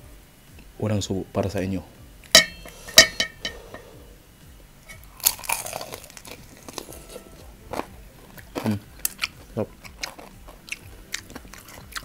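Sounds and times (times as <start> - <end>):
tableware clinking: 2.4 - 4.0
chewing crackle: 4.9 - 12.0
crunchy bite: 5.1 - 6.9, 8.6 - 12.0.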